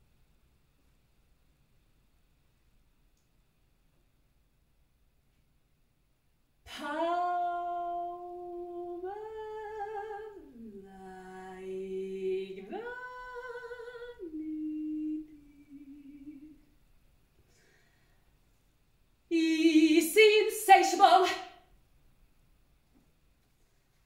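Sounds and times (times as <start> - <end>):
woman singing wordless notes: 6.7 - 16.7, 19.3 - 21.6.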